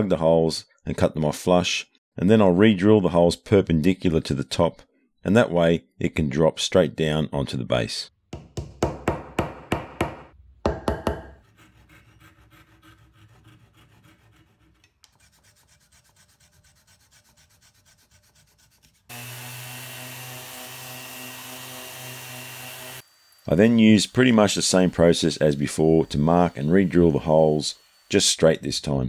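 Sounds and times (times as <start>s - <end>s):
hand saw cutting wood: 11.4s - 23.0s
orbital sander humming: 19.1s - 29.0s.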